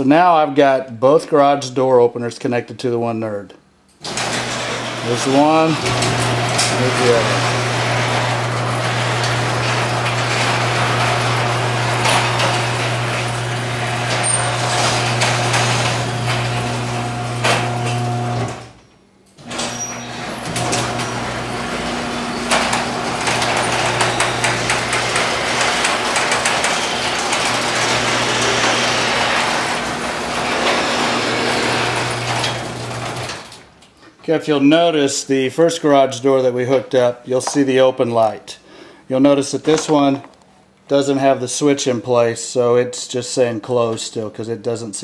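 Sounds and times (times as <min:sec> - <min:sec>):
door rattling along tracks: 0:04.0 - 0:18.8, 0:19.5 - 0:33.7
garage door motor humming: 0:04.0 - 0:33.9.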